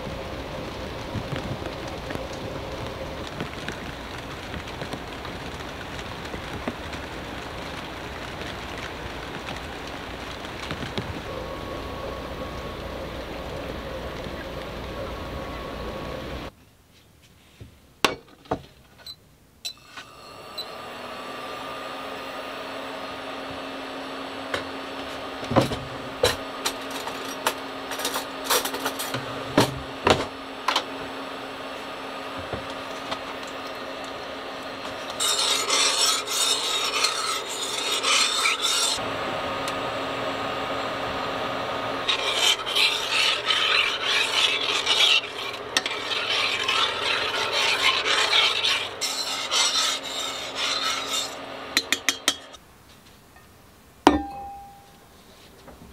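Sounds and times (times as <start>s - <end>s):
metal spoon scraping a saucepan: 35.0s - 39.0s, 42.0s - 52.6s
metal cookware clinking: 51.8s - 52.6s, 54.1s - 54.9s.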